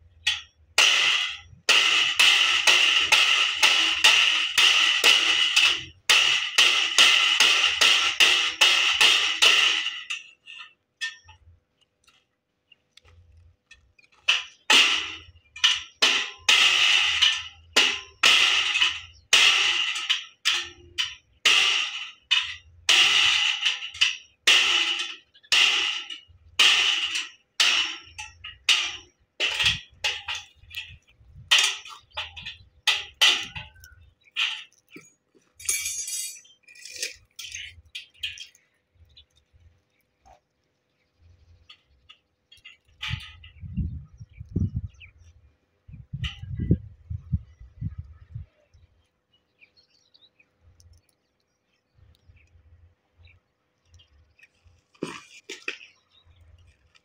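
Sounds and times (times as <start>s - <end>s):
metal strikes on steel: 0.2s - 11.4s, 14.2s - 38.6s.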